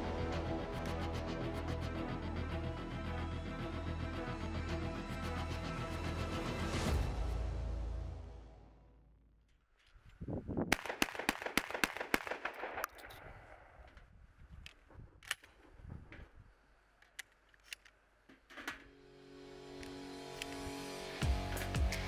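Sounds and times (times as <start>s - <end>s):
shotgun shots: 10.7s - 13.9s
shells clicking into magazine: 14.6s - 15.6s, 17.0s - 18.0s.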